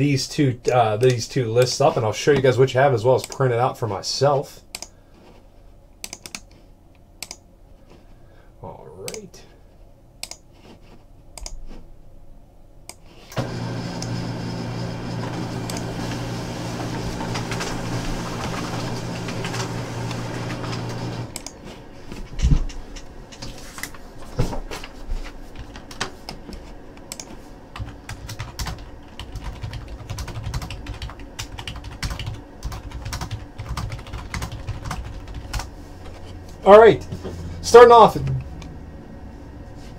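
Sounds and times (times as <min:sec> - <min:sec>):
keyboard and mouse clicks: 0:04.7 - 0:04.9, 0:06.0 - 0:06.6, 0:07.2 - 0:07.4, 0:10.2 - 0:10.4, 0:11.4 - 0:11.7, 0:21.3 - 0:21.6, 0:25.6 - 0:35.7
printer running: 0:13.3 - 0:22.0.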